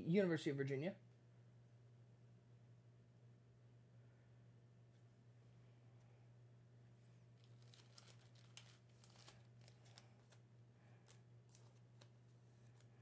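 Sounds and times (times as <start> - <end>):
steady low hum: 0.0 - 13.0
trading cards rustling and clicking: 7.4 - 13.0.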